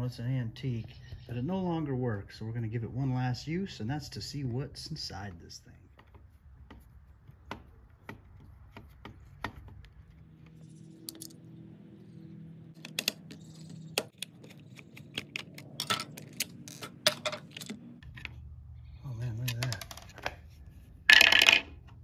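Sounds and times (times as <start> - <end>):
hard casing being handled: 12.8 - 18.4.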